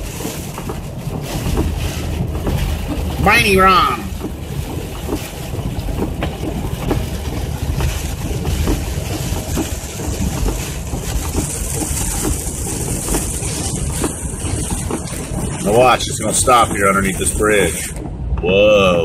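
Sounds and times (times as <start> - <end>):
raindrops ticking on windshield: 0.0 - 18.4
tyres and engine rumble: 0.0 - 19.0.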